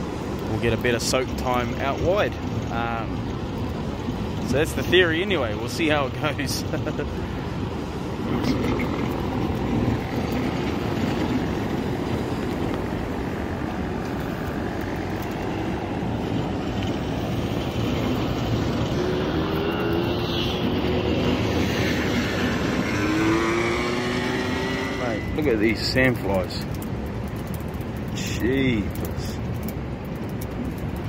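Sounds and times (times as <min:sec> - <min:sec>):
faint rising whine: 0:09.2 - 0:26.3.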